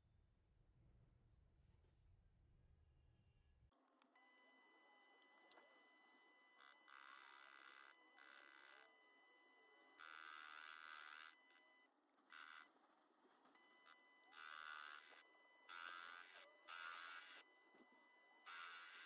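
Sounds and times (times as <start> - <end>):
faint steady whine: 4.0 - 19.0.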